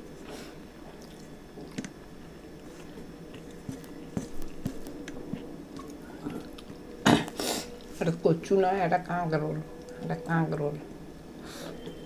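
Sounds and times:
chewing: 0.9s - 1.9s.

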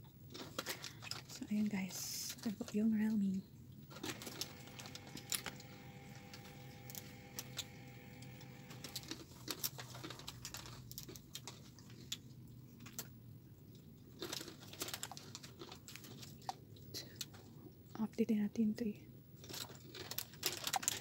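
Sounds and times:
faint steady tone: 4.2s - 9.1s.

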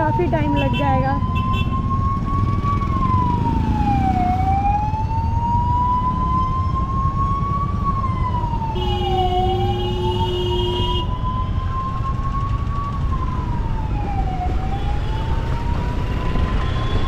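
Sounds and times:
road traffic rumble: 0.0s - 17.0s
siren wailing: 0.0s - 17.0s
vehicle horn: 9.8s - 11.1s.

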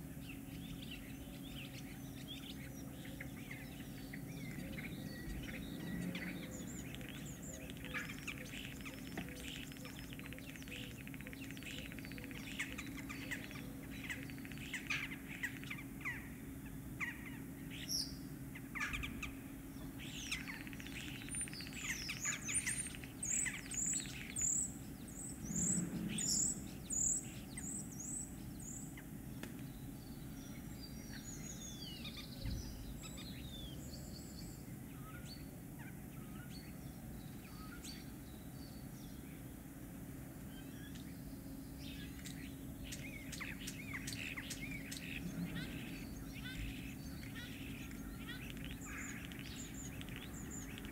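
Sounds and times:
starling singing: 0.3s - 16.3s, 41.9s - 50.9s.

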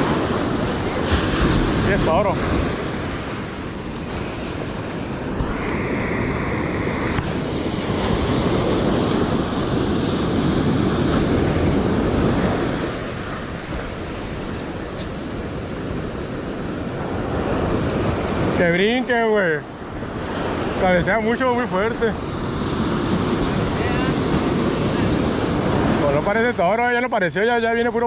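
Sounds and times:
wind buffeting microphone: 0.0s - 26.8s
ocean surf breaking: 0.0s - 28.0s.

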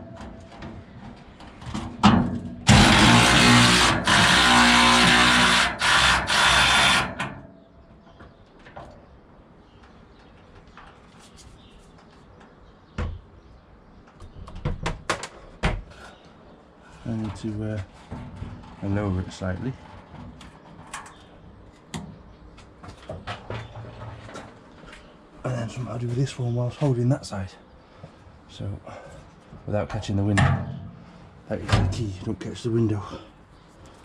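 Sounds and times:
power tool undoing a bolt: 2.6s - 7.4s.

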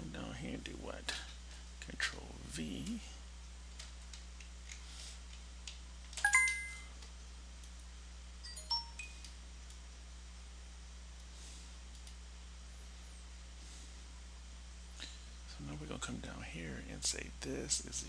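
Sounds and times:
computer notification chime: 6.2s - 6.9s, 8.5s - 9.2s.

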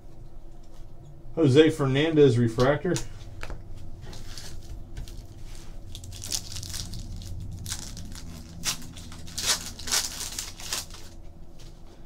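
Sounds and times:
foil wrapper crinkling and tearing: 4.0s - 11.4s.

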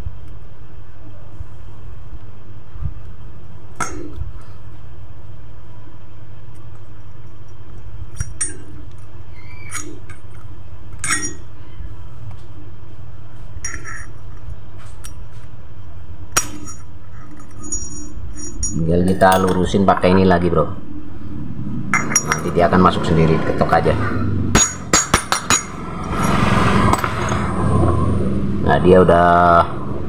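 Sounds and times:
steady low rumble: 10.2s - 30.0s.

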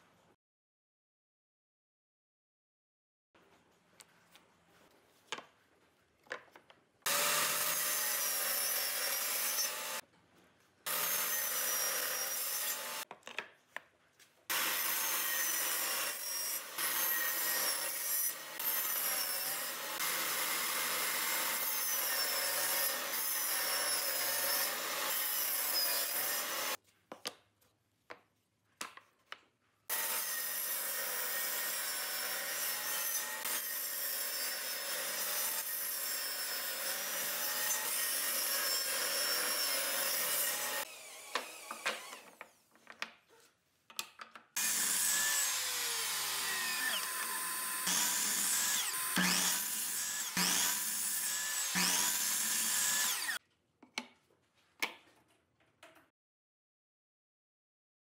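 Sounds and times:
table saw cutting wood: 7.1s - 10.0s, 10.9s - 13.1s, 14.5s - 26.8s, 29.9s - 42.6s, 44.6s - 53.4s.

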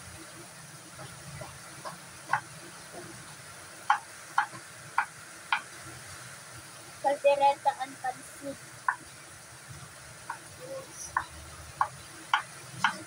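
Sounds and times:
knife knocking on chopping board: 1.0s - 2.5s.

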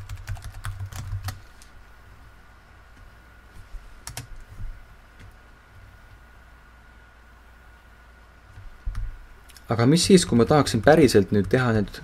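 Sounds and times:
typing on computer keyboard: 0.0s - 1.4s, 4.0s - 4.3s.

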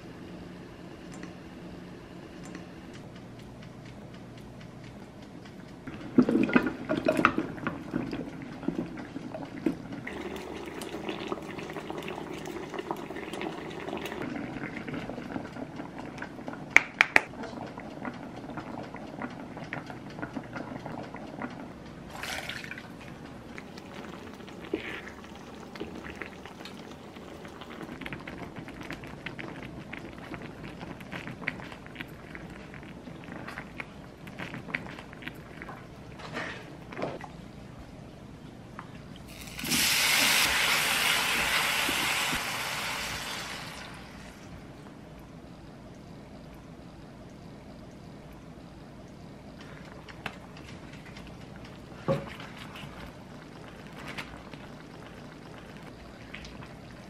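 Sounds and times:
food splashing into liquid: 22.1s - 22.9s
liquid poured into frying pan: 39.3s - 44.4s.

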